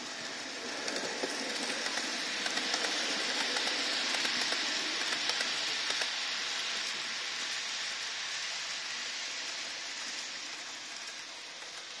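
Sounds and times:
model train whirring on track: 0:00.0 - 0:12.0.

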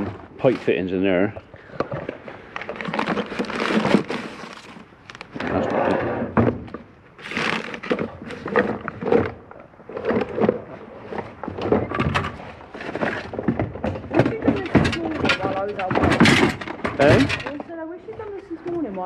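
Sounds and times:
plastic bags rustling: 0:01.9 - 0:05.6, 0:07.2 - 0:09.3
bottles and tools clunking: 0:07.6 - 0:19.0.

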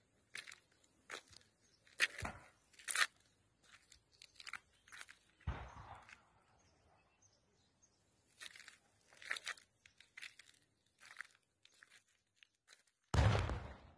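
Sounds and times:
footsteps crunching on rubble: 0:00.3 - 0:06.2, 0:08.2 - 0:13.2.

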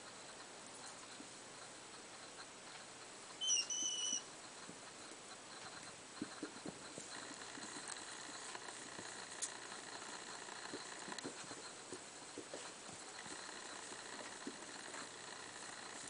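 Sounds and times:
hedgehogs shuffling on bedding: 0:00.1 - 0:16.0
high whistling squeak: 0:03.4 - 0:04.3.

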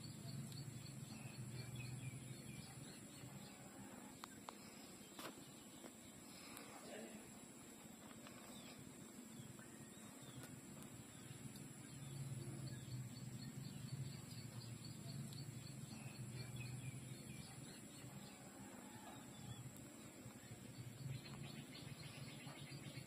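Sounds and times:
rapid faint high chirps: 0:00.0 - 0:23.0.

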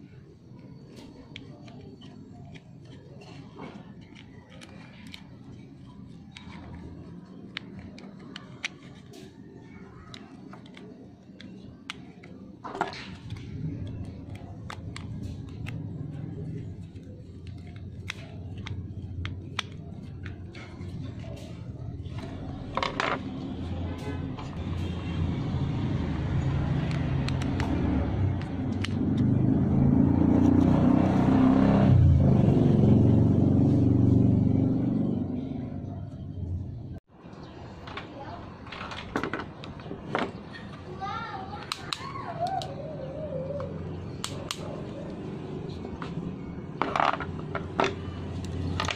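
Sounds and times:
vehicle engine rumble: 0:00.0 - 0:48.9
handling noise: 0:45.8 - 0:48.9.

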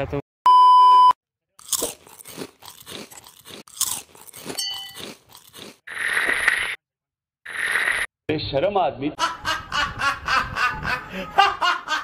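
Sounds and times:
person chewing crunchy snacks: 0:01.6 - 0:06.8.

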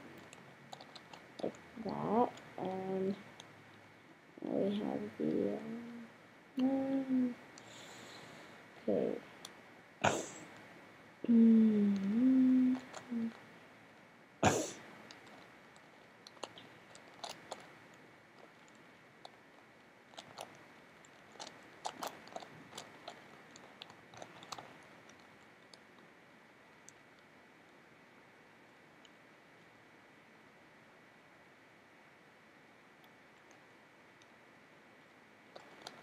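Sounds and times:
puzzle cube clicking: 0:00.2 - 0:02.5, 0:20.1 - 0:24.7
person humming: 0:04.4 - 0:07.4, 0:11.2 - 0:13.4.

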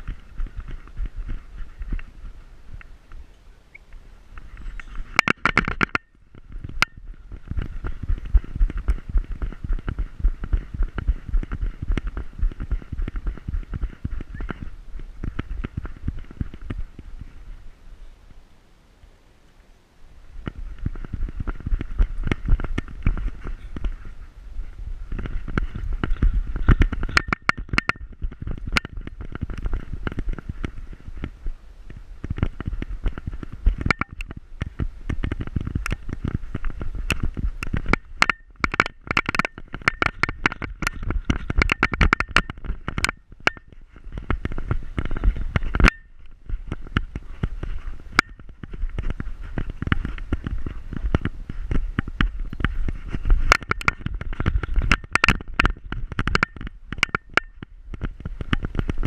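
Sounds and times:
camera rubbing and knocking: 0:00.0 - 0:02.4, 0:04.4 - 0:17.5, 0:20.4 - 0:59.0
clicks and rattles: 0:04.4 - 0:14.7, 0:25.1 - 0:31.3, 0:32.2 - 0:59.0
low rumble: 0:06.1 - 0:18.1.

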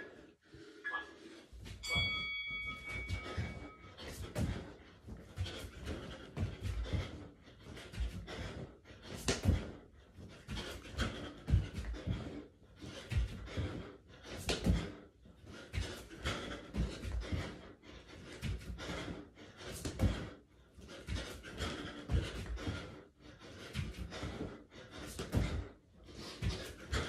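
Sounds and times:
man panting heavily: 0:00.0 - 0:27.0
hands and feet thudding on floor: 0:01.6 - 0:07.2.

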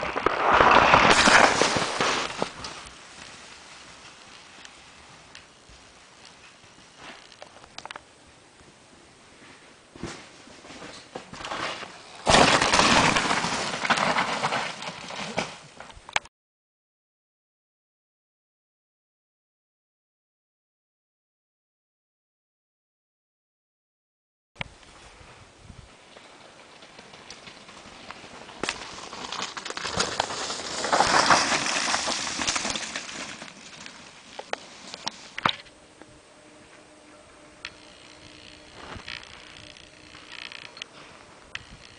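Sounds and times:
bike tyres over snow and leaves: 0:00.0 - 0:16.1, 0:24.6 - 0:41.9
faint crackles: 0:00.0 - 0:16.2, 0:24.6 - 0:41.9.

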